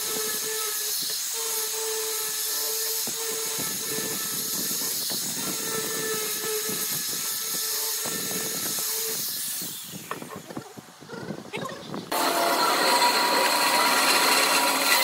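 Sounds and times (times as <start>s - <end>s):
sanding drum hissing on wood: 0.0s - 10.2s
angle grinder motor whine: 0.0s - 10.6s, 12.1s - 15.0s.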